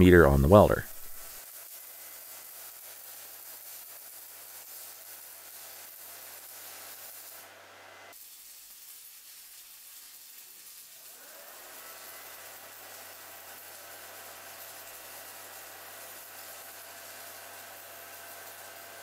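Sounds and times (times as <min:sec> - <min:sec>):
faint electrical hum: 0:00.0 - 0:01.4
welding arc hissing: 0:00.9 - 0:19.0.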